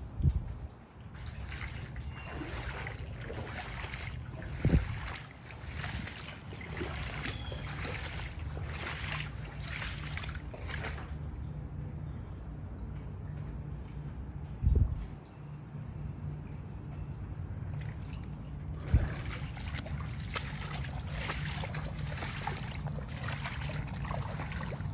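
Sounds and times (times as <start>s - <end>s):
footsteps splashing through water: 1.1s - 11.5s, 17.7s - 24.9s.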